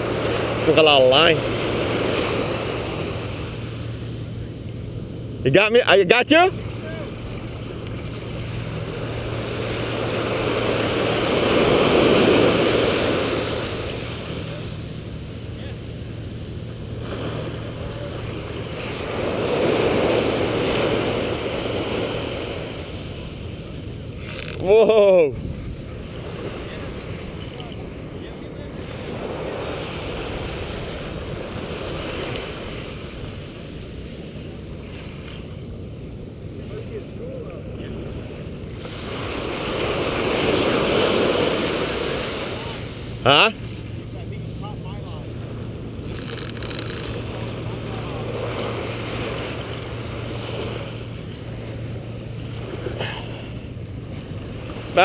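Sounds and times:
surf washing up the beach: 0:00.0 - 0:04.4, 0:05.2 - 0:46.2, 0:47.0 - 0:55.0.

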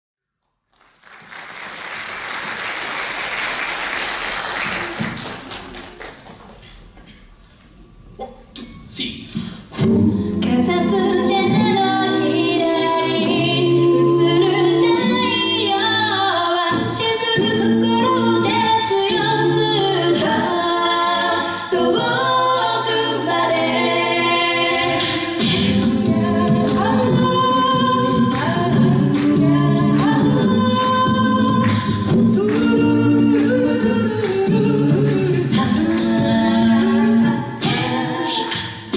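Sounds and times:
a cappella group singing: 0:09.5 - 0:38.9.

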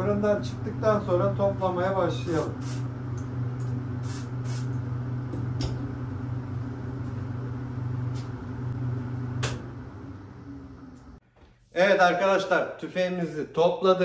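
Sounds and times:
low machine hum: 0:00.0 - 0:11.2
spray gun hissing: 0:02.4 - 0:02.9, 0:04.0 - 0:04.7.

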